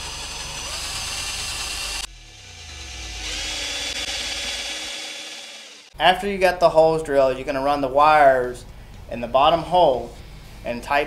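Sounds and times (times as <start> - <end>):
cordless drill motor: 0.0 - 5.9.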